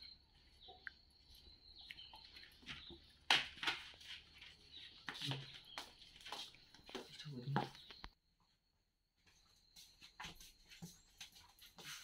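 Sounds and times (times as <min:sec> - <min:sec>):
cricket trill: 0:00.0 - 0:12.0
scuffing footsteps: 0:01.4 - 0:08.1, 0:09.2 - 0:12.0.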